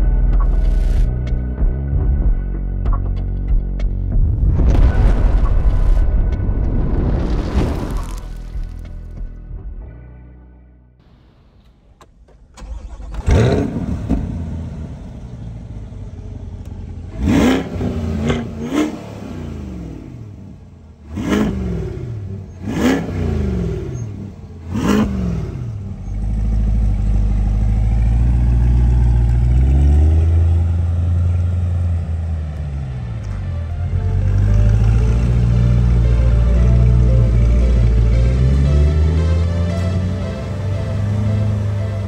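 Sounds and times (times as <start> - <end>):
car engine revving: 12.6 - 42.0.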